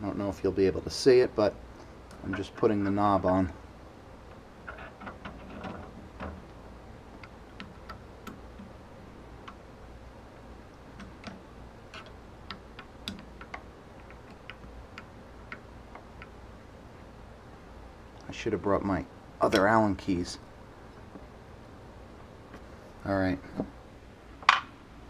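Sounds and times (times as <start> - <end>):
small metal clicks: 10.7 - 16.4.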